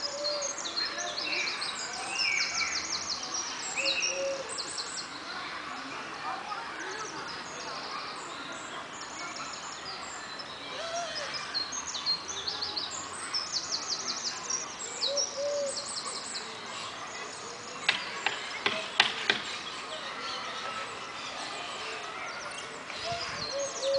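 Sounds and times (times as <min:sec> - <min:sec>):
birds chirping: 0:06.8 - 0:23.9.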